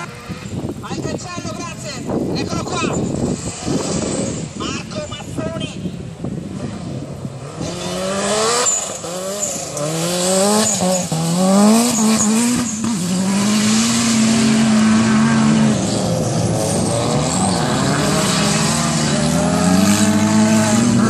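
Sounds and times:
car engine revving hard: 7.4s - 21.0s.

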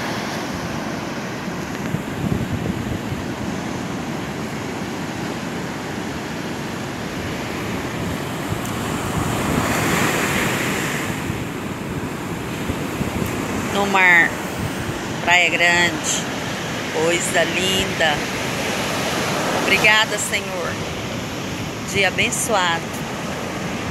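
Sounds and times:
wind buffeting microphone: 0.0s - 4.8s, 5.9s - 17.0s
ocean surf breaking: 0.0s - 23.9s.

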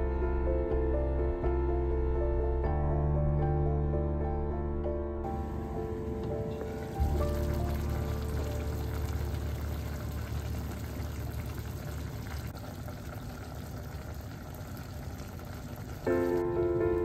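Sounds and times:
music: 0.0s - 10.6s, 16.1s - 17.0s
pot of vegetables bubbling: 5.4s - 16.6s.

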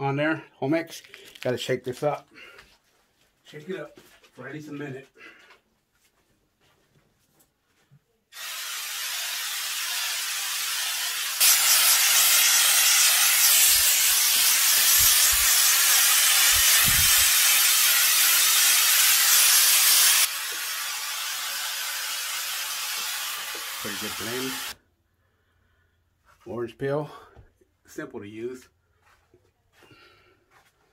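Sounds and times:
aerosol spray hiss: 8.3s - 24.8s.

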